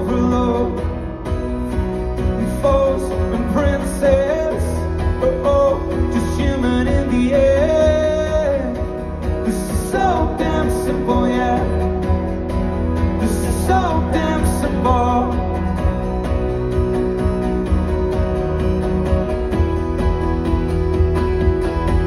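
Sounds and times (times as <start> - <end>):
man singing: 0.0 - 15.9
acoustic guitar strumming: 0.0 - 22.0.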